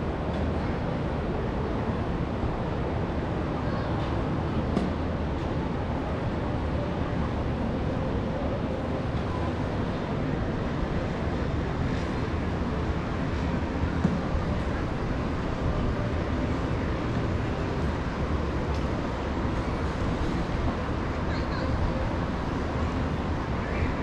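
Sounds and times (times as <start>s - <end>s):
distant city traffic rumble: 0.0s - 24.0s.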